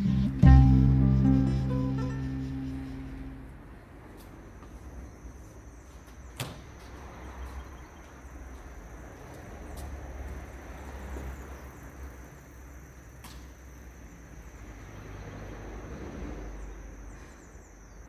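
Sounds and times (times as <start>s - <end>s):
distant traffic rumble: 0.0s - 18.0s.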